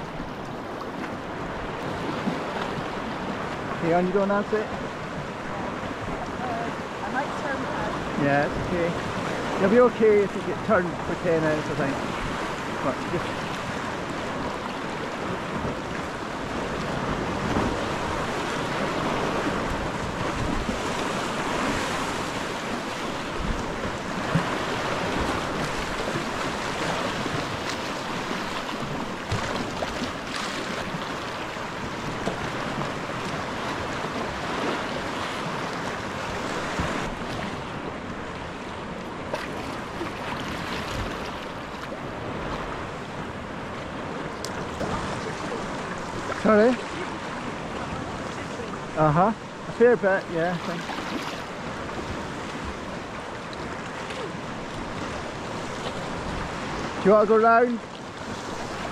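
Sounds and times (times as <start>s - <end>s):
waves breaking against rocks: 0.0s - 58.9s
wind on microphone: 11.8s - 49.0s
small splashes: 24.2s - 33.4s.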